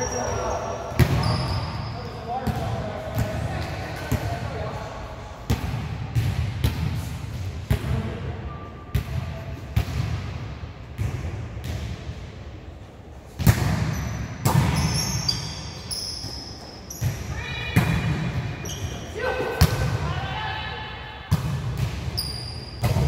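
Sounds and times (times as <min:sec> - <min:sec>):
shoe squeaks: 0:00.0 - 0:02.3, 0:13.9 - 0:17.8, 0:18.6 - 0:19.1, 0:22.1 - 0:22.8.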